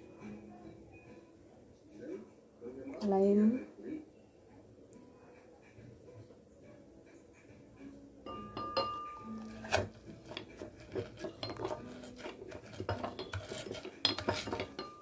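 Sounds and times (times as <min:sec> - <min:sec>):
grinding and rubbing: 0:09.4 - 0:14.9.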